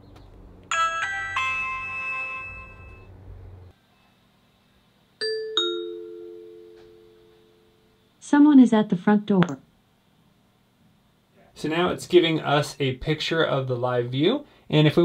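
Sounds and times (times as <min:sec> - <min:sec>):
doorbell three-note chime: 0:00.7 - 0:03.1, 0:05.2 - 0:07.7
two-note ding-dong doorbell chime: 0:00.7 - 0:03.1, 0:05.2 - 0:07.7.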